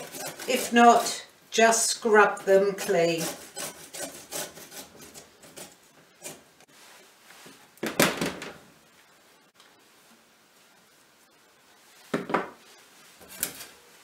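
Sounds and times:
carrot rasping on metal grater: 0.0 - 1.3, 2.4 - 6.4.

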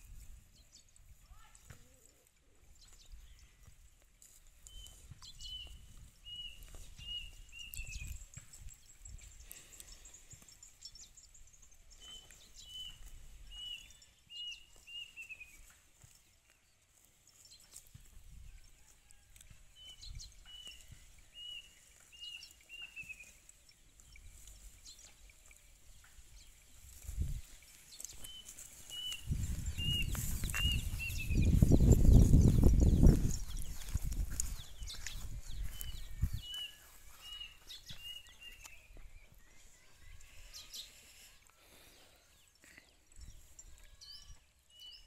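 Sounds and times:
cow chewing dry grass: 3.3 - 38.8
bird chirping: 4.6 - 17.7, 19.8 - 45.0.

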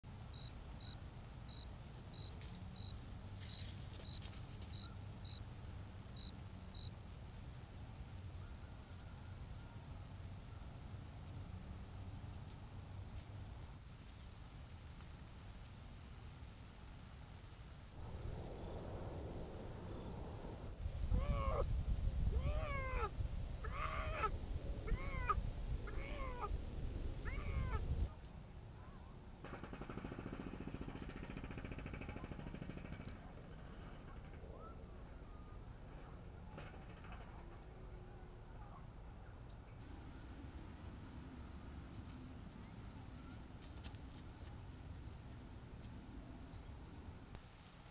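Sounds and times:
cricket chirping: 0.3 - 5.5, 6.1 - 7.0
low steady hum: 17.4 - 47.9
low rumble: 18.0 - 22.5
bobcat calling: 21.1 - 21.7, 22.3 - 26.6, 27.2 - 27.9.

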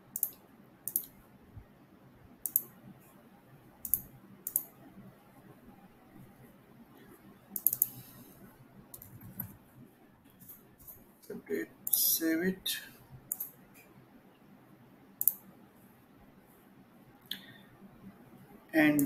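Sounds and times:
mouse and keyboard clicks: 0.2 - 1.2, 2.4 - 2.7, 3.8 - 4.7, 7.6 - 8.0, 9.0 - 9.6, 13.3 - 13.6, 15.2 - 15.4.

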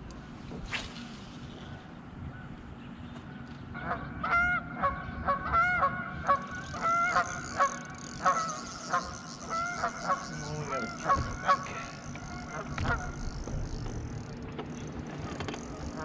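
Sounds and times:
geese honking: 3.8 - 13.2.

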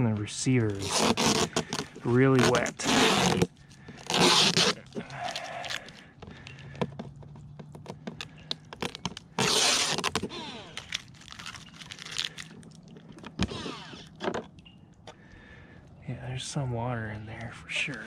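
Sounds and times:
tape being ripped off: 0.6 - 6.0, 8.8 - 12.6, 13.2 - 14.2.

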